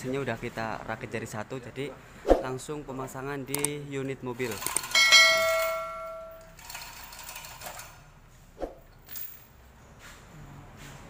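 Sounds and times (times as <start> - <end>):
chain and metal parts clinking: 4.4 - 8.1, 8.8 - 9.6
metal clang: 4.9 - 6.6.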